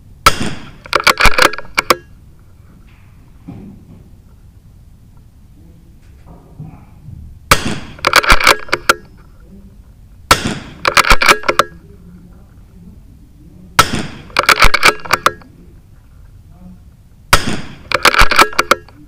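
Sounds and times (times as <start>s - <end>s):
rifle shots: 0.2s - 2.0s, 7.5s - 9.1s, 10.3s - 11.8s, 13.8s - 15.4s, 17.3s - 18.9s
sharp clicks: 0.4s - 2.1s, 7.6s - 9.1s, 10.3s - 11.8s, 13.9s - 15.5s, 17.4s - 19.0s.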